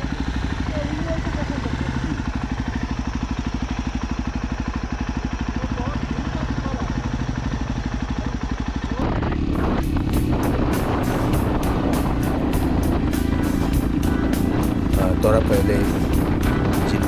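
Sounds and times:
motorcycle engine: 0.0s - 17.0s
background music: 9.8s - 17.0s.

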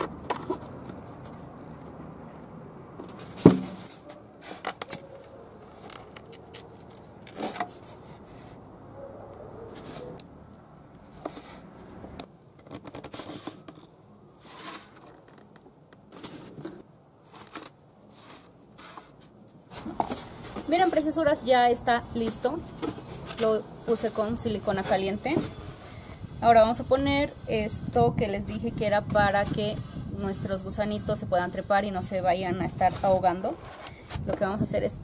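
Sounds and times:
light clicks and scrapes: 3.0s - 8.6s, 9.5s - 10.2s, 11.0s - 21.2s, 32.8s - 34.5s
cooler box set down knock: 3.4s - 3.9s.

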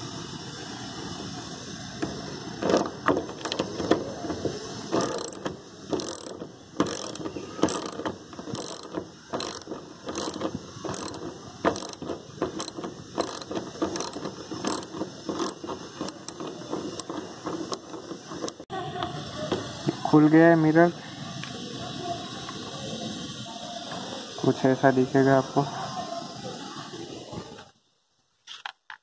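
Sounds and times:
socket ratchet clicking: 2.0s - 4.0s, 4.9s - 18.6s.

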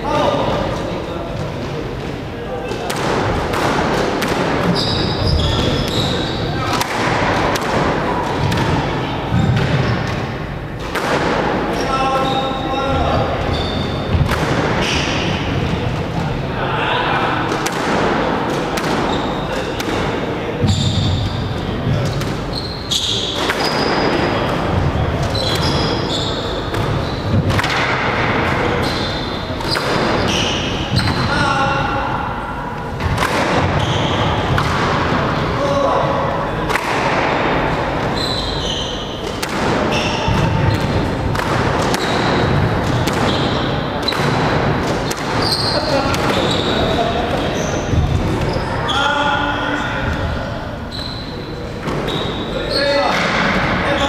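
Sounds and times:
steady background noise: 0.0s - 54.0s
squash ball cracks: 2.7s - 4.7s, 6.6s - 8.8s, 17.5s - 20.1s, 39.2s - 43.3s, 44.0s - 45.4s
shoes squeaking on wooden floor: 4.6s - 6.7s, 11.7s - 15.2s, 20.6s - 27.5s, 33.7s - 34.6s, 38.0s - 39.2s, 39.9s - 40.9s, 42.0s - 44.3s, 45.4s - 49.2s, 50.9s - 53.1s
squash ball knocks: 39.2s - 45.4s.

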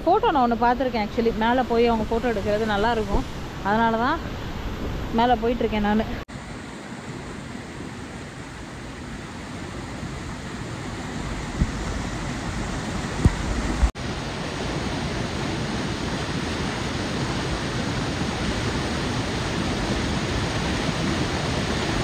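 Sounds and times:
waterfall rushing: 10.4s - 22.0s.

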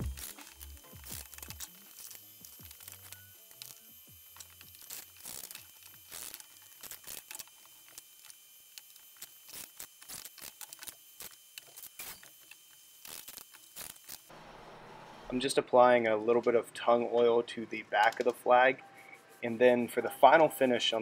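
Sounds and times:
screws rattling in plastic box: 0.0s - 11.8s.

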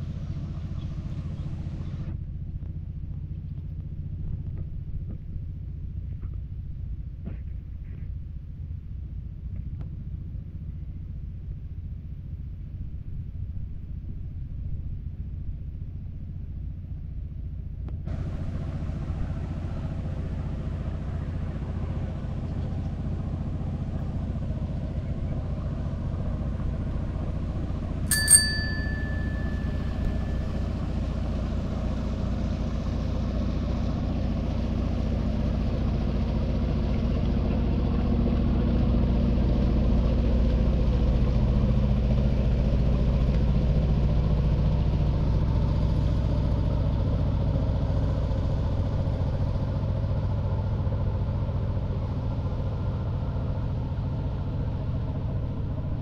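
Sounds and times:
motor vehicle rumble: 0.0s - 56.0s
small bell ringing: 28.1s - 31.0s.

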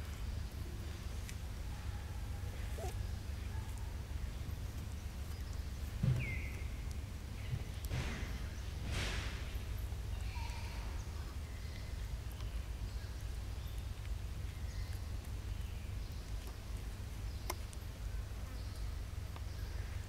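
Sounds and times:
faint chirps: 1.7s - 3.8s, 10.1s - 13.9s.

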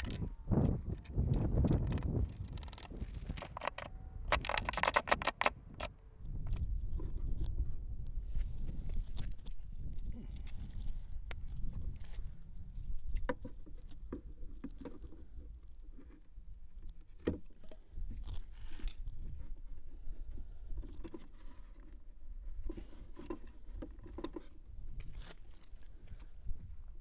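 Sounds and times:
hose handling clicks and rubbing: 0.0s - 7.5s, 22.6s - 26.3s
sharp click: 1.0s - 5.9s.

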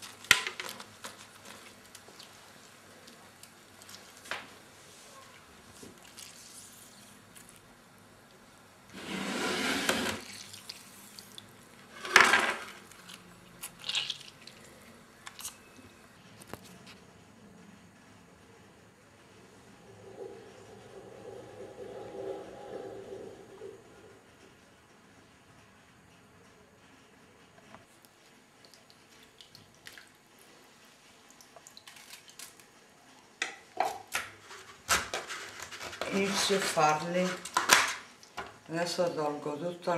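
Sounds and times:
small drips and taps: 28.0s - 30.2s
wet rubbing of vegetables in bowl: 34.4s - 37.6s.

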